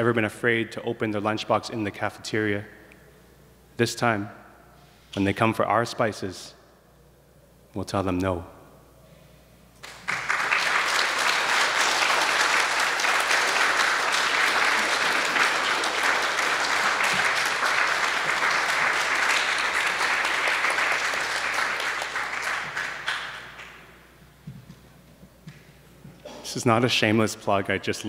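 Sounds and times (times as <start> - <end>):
audience applauding: 9.8 - 23.9.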